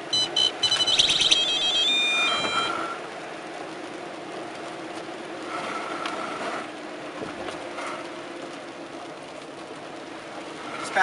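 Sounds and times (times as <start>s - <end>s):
car road and engine noise: 0.0s - 11.0s
faint tone: 0.2s - 3.0s.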